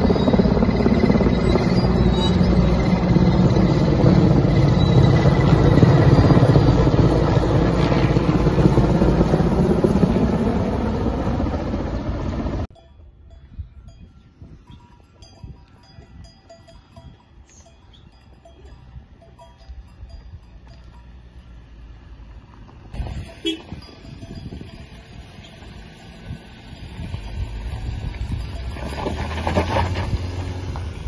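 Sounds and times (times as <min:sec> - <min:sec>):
helicopter rotor and engine: 0:00.0 - 0:12.7
cowbells clinking: 0:12.7 - 0:21.6, 0:23.0 - 0:25.7, 0:27.2 - 0:29.0.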